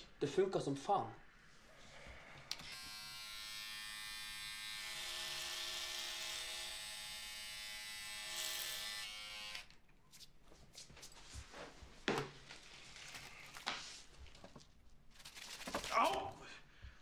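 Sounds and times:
hair clipper buzzing: 0:02.5 - 0:09.7.

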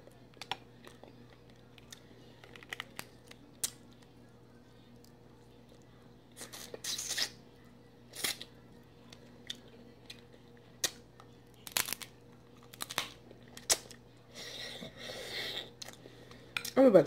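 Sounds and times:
crab shells cracking: 0:02.4 - 0:03.8, 0:11.6 - 0:14.0.

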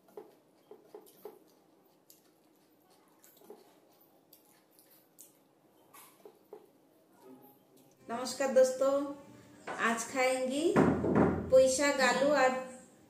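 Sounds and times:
fingers mixing rice on metal plate: 0:00.0 - 0:06.8.

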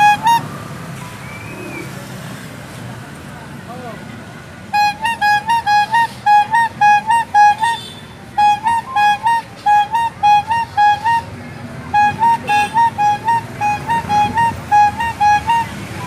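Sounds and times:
rubber bulb horn tooting: 0:00.0 - 0:00.5, 0:04.7 - 0:16.0.

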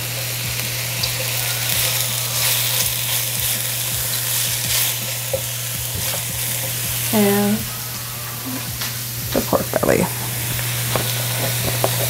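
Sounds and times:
vegetables sizzling in a wok: 0:00.0 - 0:12.0
spatula stirring in a wok: 0:00.1 - 0:08.0.

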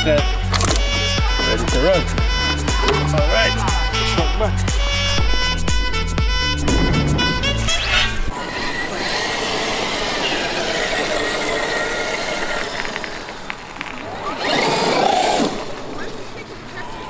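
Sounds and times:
background music: 0:00.0 - 0:08.3
rc truck electric motor whirring: 0:07.7 - 0:16.3.

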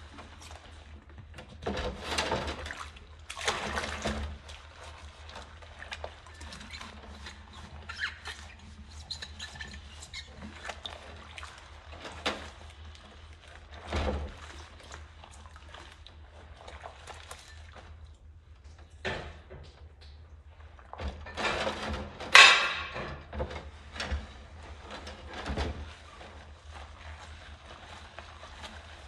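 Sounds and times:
water splashes: 0:00.0 - 0:18.6
water pouring and sloshing: 0:00.0 - 0:29.0.

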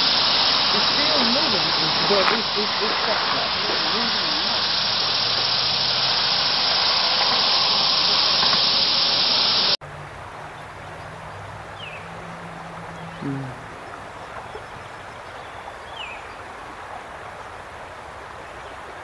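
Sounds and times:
loud steady hiss: 0:00.0 - 0:09.8
brief short sound: 0:13.2 - 0:13.7.

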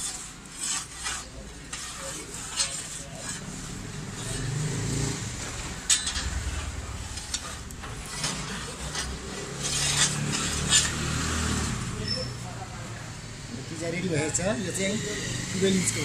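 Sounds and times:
metal peel scraping oven floor: 0:00.0 - 0:12.4
steady low hum: 0:05.2 - 0:10.0.

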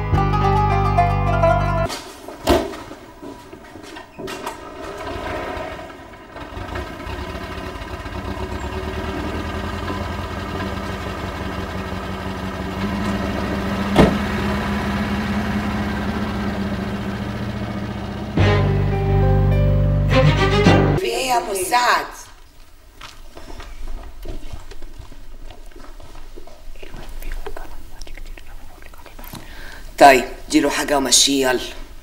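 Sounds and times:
car engine starting and idling: 0:04.2 - 0:21.0
knocks: 0:13.9 - 0:14.3.

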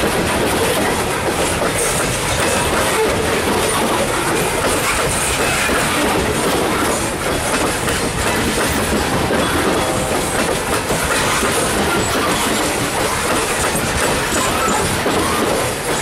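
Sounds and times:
freight train wheels rumbling on rails: 0:00.0 - 0:16.0.

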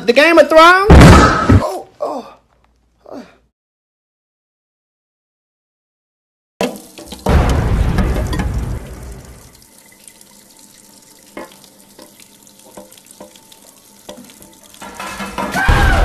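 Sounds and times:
tap running into sink: 0:06.6 - 0:15.6
low boom: 0:07.3 - 0:09.4.

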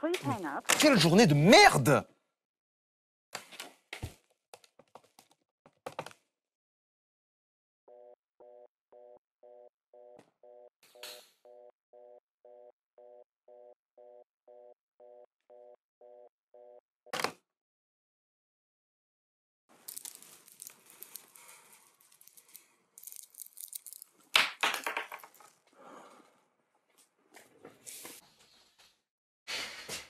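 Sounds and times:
telephone busy tone: 0:07.9 - 0:16.8.

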